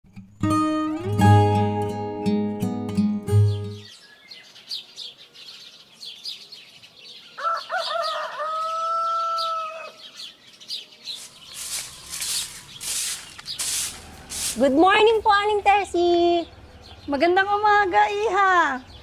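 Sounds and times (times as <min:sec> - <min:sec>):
small birds chirping: 0:03.4 - 0:19.0
rooster crowing: 0:07.4 - 0:10.1
scratchy hisses: 0:11.1 - 0:14.8.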